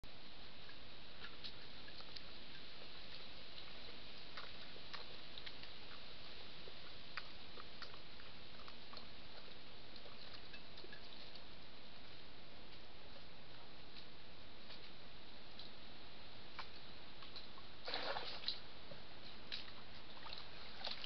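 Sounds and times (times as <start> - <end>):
microphone hiss: 0.0 - 21.0
badger feeding clicks and crunches: 1.2 - 11.5.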